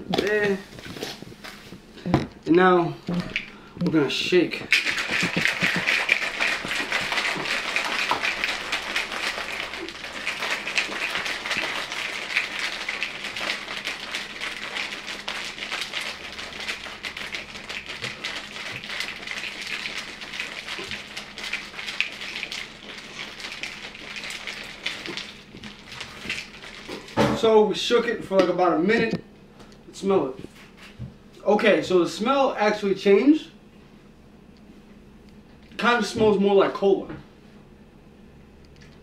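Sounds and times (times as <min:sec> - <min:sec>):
ice cubes rattling in a shaker: 0:04.7 - 0:27.2.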